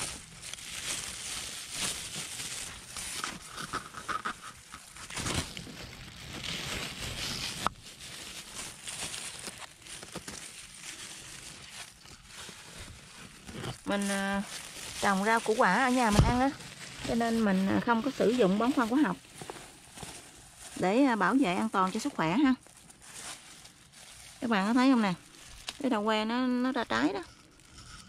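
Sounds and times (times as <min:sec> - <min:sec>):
dry leaves rustling: 0:00.0 - 0:03.8, 0:04.5 - 0:28.0
plastic bag crinkling: 0:00.0 - 0:28.0.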